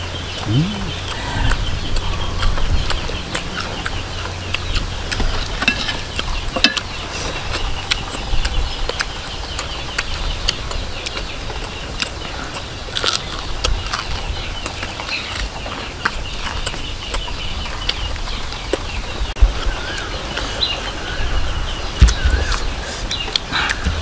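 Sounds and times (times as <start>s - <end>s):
mouth clicks: 0.0s - 15.6s
crunchy chewing: 0.0s - 19.2s.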